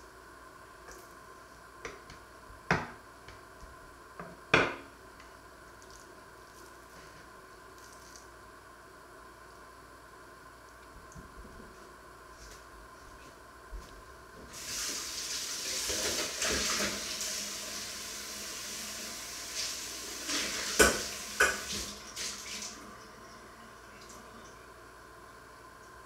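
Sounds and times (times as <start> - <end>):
tap running into sink: 20.7 - 21.9.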